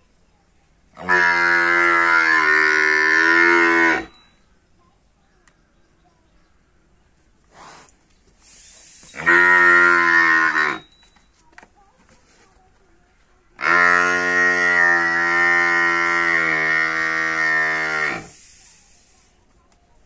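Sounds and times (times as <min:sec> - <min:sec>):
water buffalo calf calling: 0:01.0 - 0:04.2, 0:08.9 - 0:10.9, 0:13.6 - 0:18.4.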